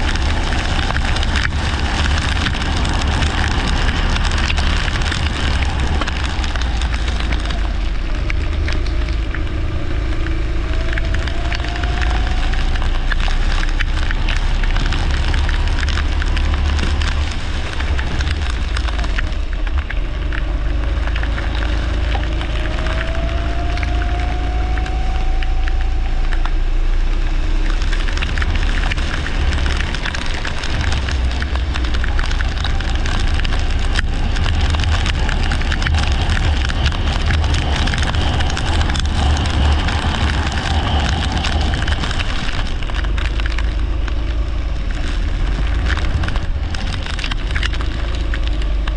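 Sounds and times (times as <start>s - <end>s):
deep rumble: 0.0s - 48.9s
kart engine accelerating: 20.2s - 30.6s.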